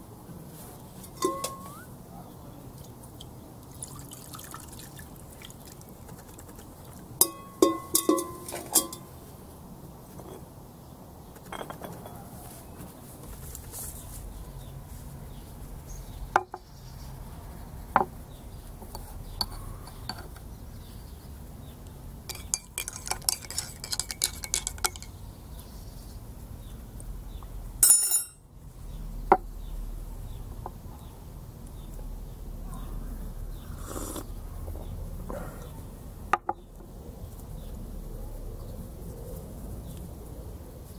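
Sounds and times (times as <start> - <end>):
spoon clinking against mug: 1.1 - 1.8, 7.2 - 9.1, 11.5 - 12.2, 18.9 - 20.3, 22.3 - 25.2, 27.8 - 28.4.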